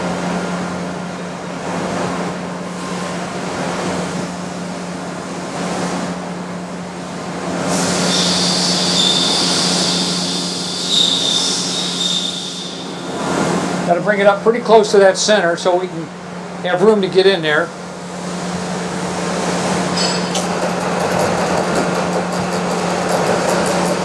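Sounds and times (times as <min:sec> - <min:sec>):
high-pitched hissing whine: 0:07.6 - 0:13.9
grinder motor humming: 0:20.4 - 0:24.0.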